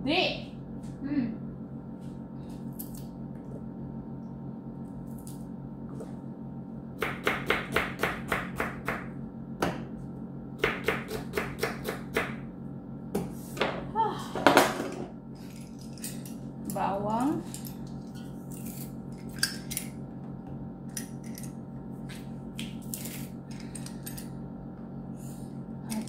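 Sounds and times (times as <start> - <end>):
steady low hum: 0.0 - 26.0
knife chopping on plastic board: 10.6 - 12.4.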